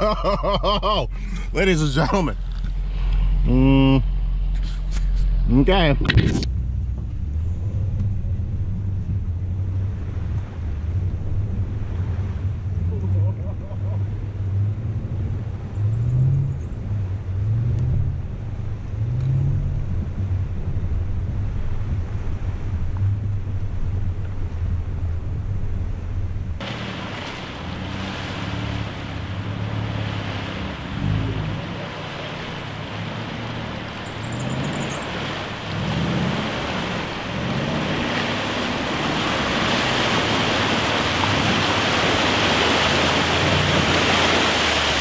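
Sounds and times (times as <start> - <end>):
car engine hum: 0.0 - 45.0
water rushing and splashing: 8.6 - 15.7, 26.6 - 45.0.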